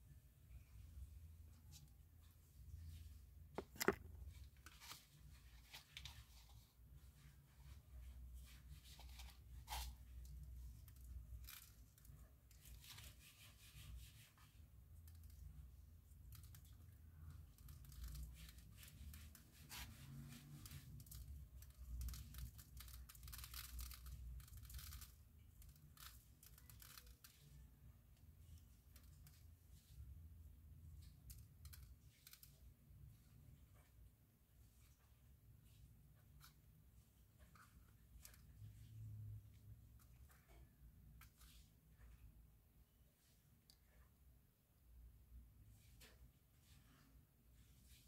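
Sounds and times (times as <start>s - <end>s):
craft materials rustling and clicking: 3.6s - 4.2s.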